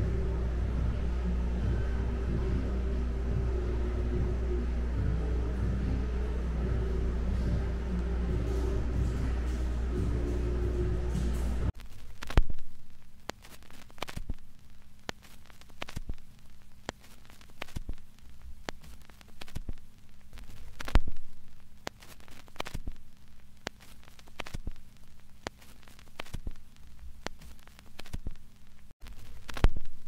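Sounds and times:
faint steady hum: 0:00.0 - 0:30.0
irregular clicks and pops: 0:11.7 - 0:30.0.

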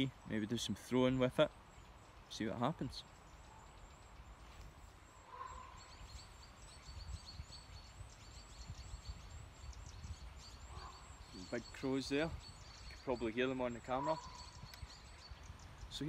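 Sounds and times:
faint high rapid bird chirping: 0:00.0 - 0:16.0
crow calling: 0:05.1 - 0:06.4, 0:10.5 - 0:12.0, 0:12.9 - 0:15.0.

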